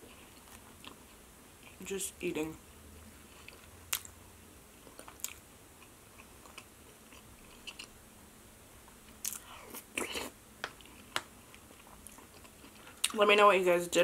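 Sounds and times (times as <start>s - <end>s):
chewing and mouth clicks: 4.8s - 7.9s, 9.1s - 13.2s.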